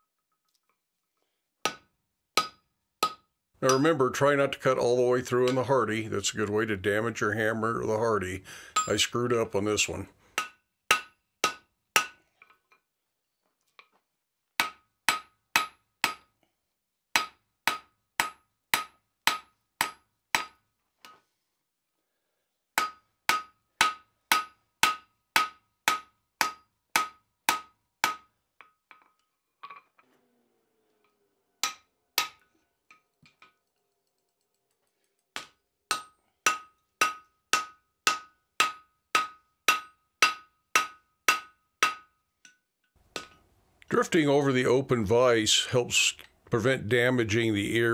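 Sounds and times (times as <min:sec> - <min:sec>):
hammer striking hot steel: 0:01.6 - 0:03.9, 0:10.4 - 0:12.2, 0:14.6 - 0:16.3, 0:17.2 - 0:20.6, 0:22.8 - 0:29.0, 0:31.6 - 0:33.0, 0:35.4 - 0:42.6.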